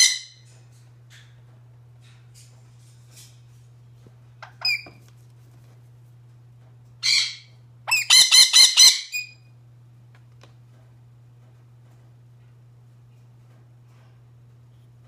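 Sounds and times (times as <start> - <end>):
parrot squawking: 0.0 - 0.4, 7.0 - 9.4.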